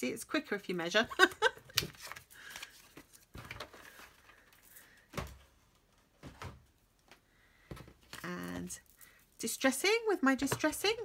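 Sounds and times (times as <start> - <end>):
paper rustling: 1.7 - 5.0.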